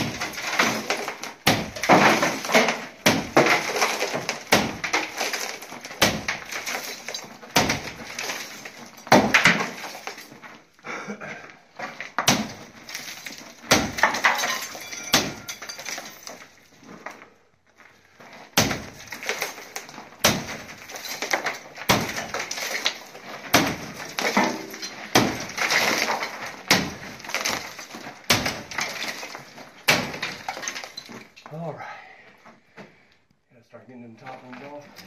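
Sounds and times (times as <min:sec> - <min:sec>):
broken pieces clattering down: 0:00.0 - 0:10.5, 0:11.8 - 0:16.7, 0:18.9 - 0:31.4.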